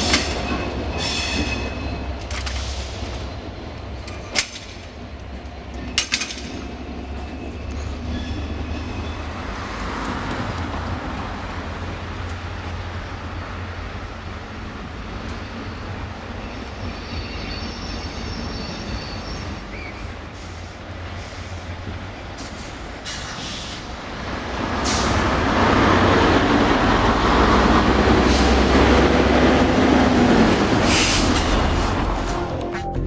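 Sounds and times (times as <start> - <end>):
high wheel squeal: 0.0 - 3.0, 7.1 - 9.5
wheel and rail noise: 0.0 - 32.6
diesel locomotive engine humming: 0.0 - 33.0
clicks over rail joints: 4.0 - 6.6.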